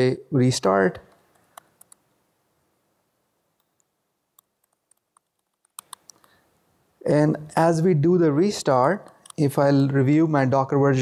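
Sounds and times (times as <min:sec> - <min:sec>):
computer keyboard typing: 0:04.6 - 0:06.3.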